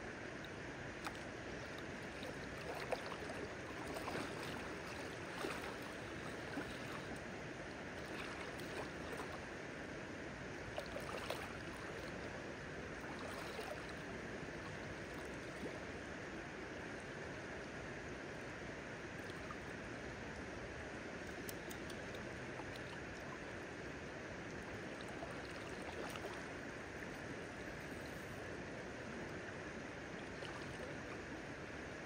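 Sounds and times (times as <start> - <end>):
light splashes: 0.4 - 7.3, 8.0 - 9.5, 10.7 - 12.3, 12.9 - 15.8, 24.6 - 27.9, 30.2 - 31.3.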